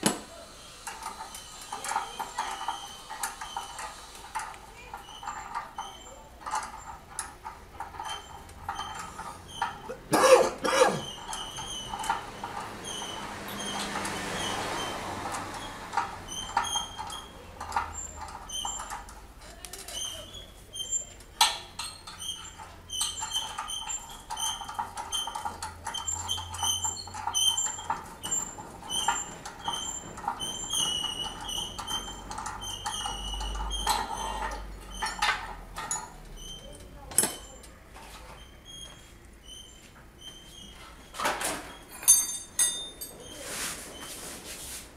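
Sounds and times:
metal tools knocking on engine: 41.2s - 43.2s.

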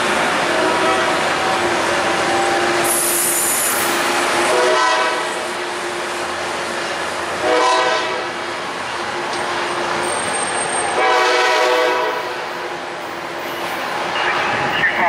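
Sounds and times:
train rumbling: 0.0s - 15.0s
train horn blast: 0.5s - 1.2s, 4.5s - 5.5s, 7.4s - 8.4s, 11.0s - 12.4s.

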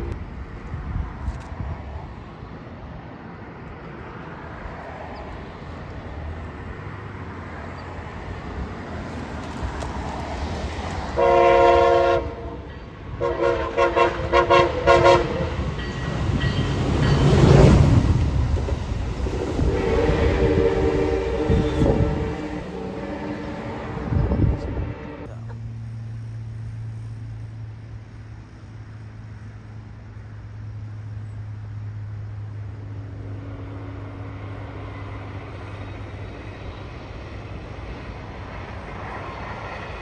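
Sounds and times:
train passing rumble: 0.0s - 40.0s
train air horn blasts: 11.2s - 15.8s, 19.4s - 25.3s.

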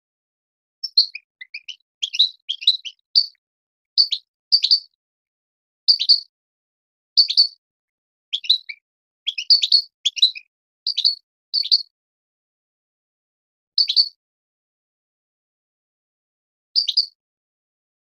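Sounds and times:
goldfinch twittering chirps: 0.8s - 3.4s, 4.0s - 5.0s, 5.9s - 6.3s, 7.2s - 7.6s, 8.3s - 11.9s, 13.8s - 14.1s, 16.8s - 17.2s.

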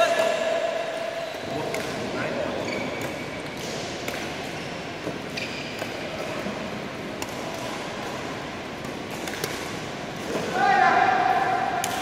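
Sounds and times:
shoe squeak: 2.5s - 3.0s, 5.4s - 5.7s
rackets hitting shuttlecocks: 2.8s - 10.6s, 11.3s - 12.0s.

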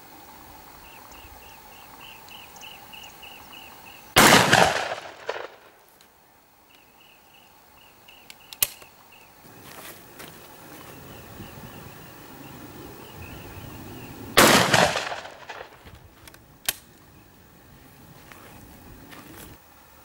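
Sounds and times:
shotgun shot: 4.2s - 5.8s, 14.4s - 15.8s.

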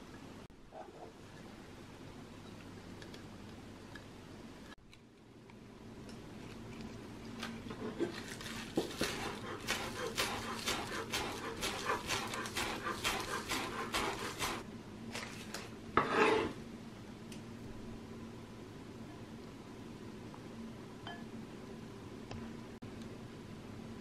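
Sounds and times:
knife chopping on wooden board: 8.8s - 14.6s
knife scraping board: 8.8s - 14.6s, 16.0s - 16.6s.

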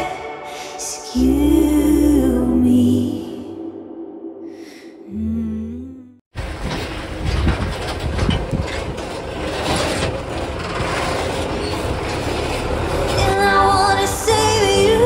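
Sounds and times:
moving vehicle rumble and rattle: 6.4s - 15.0s.

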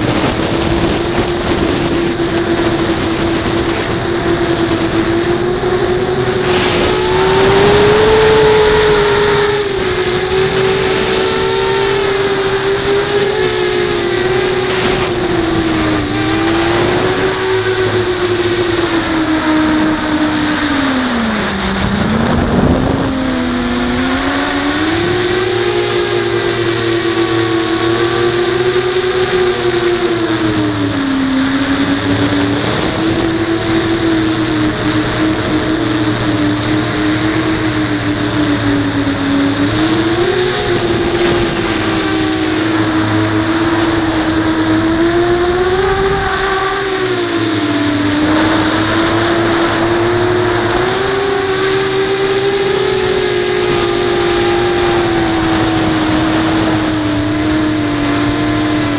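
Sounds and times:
rushing air: 0.0s - 25.2s
quadcopter motors whining: 0.0s - 58.9s.

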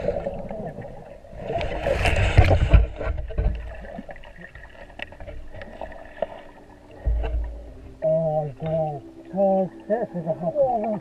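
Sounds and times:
underwater bubbling and sloshing: 0.0s - 11.0s
dull underwater thumps: 2.0s - 4.1s, 7.0s - 8.0s.

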